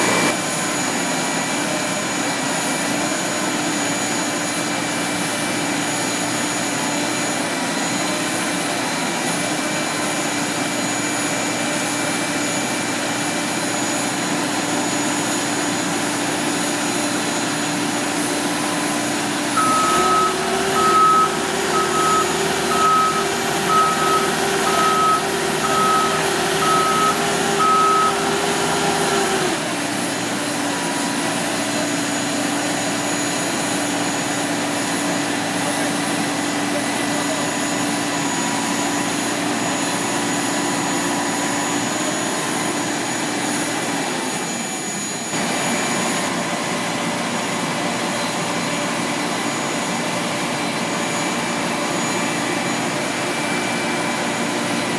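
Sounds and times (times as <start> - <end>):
cargo loader motor droning: 6.0 - 37.9
high warning beeper: 19.5 - 28.9.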